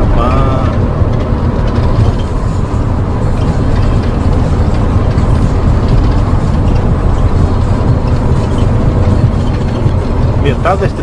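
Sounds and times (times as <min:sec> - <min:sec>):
engine and tyres rumbling: 0:00.0 - 0:11.0.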